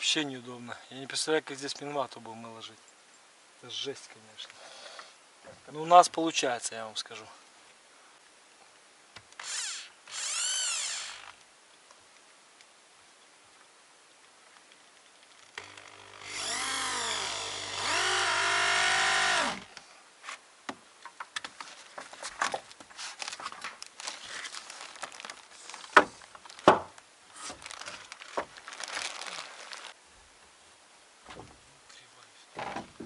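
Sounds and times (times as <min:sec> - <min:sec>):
drill-driver motor whine: 0:09.4 - 0:11.3, 0:15.6 - 0:19.7
boards being handled: 0:20.2 - 0:24.7, 0:25.4 - 0:28.6.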